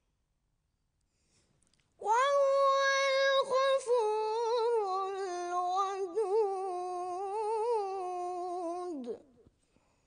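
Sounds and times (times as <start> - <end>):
boy chanting melodically: 2.0 - 9.4.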